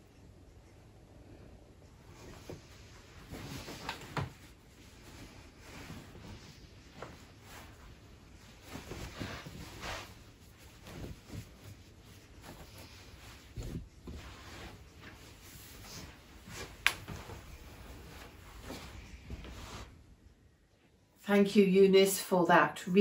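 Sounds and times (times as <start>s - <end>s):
towel rustling: 1.9s - 20.2s.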